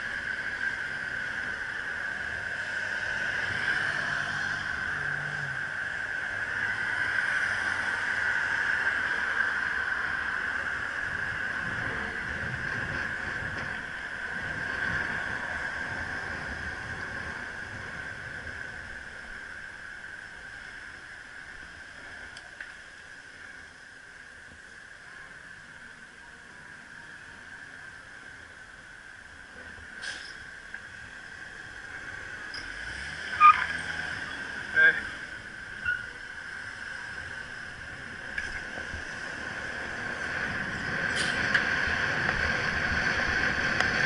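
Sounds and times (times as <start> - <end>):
electric bicycle motor whine: 0.0 - 22.1
road and wind noise: 0.0 - 44.0.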